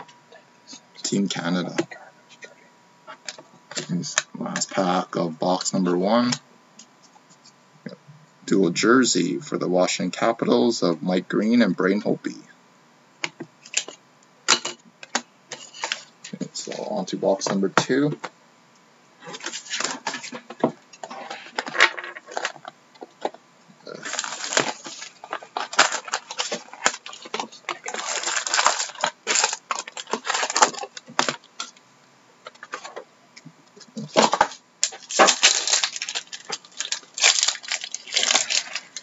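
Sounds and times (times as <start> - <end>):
foil wrappers crinkling: 15.5 - 17.1, 19.2 - 31.8, 34.0 - 39.0
clicks and knocks of packs: 24.0 - 31.7, 33.9 - 39.0.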